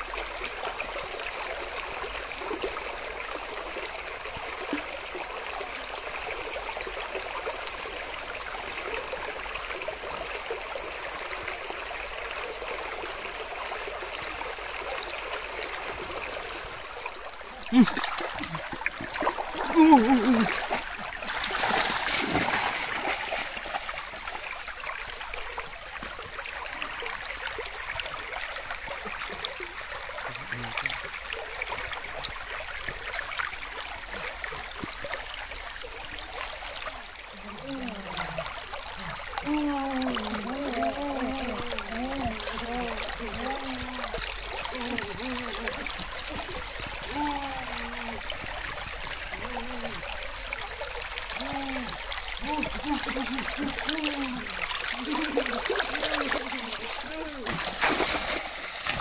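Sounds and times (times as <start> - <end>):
creek water running over stones: 0.0 - 59.0
water splashed by hand: 15.9 - 24.9, 36.9 - 59.0.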